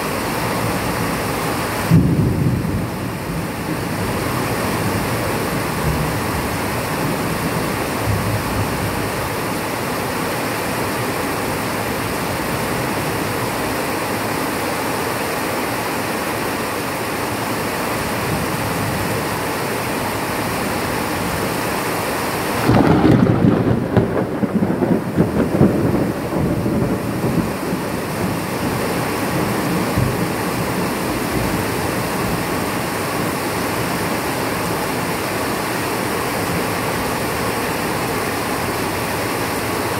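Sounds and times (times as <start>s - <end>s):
heavy rain: 0.0s - 39.9s
thunder rumbling: 1.8s - 10.2s, 22.6s - 32.8s.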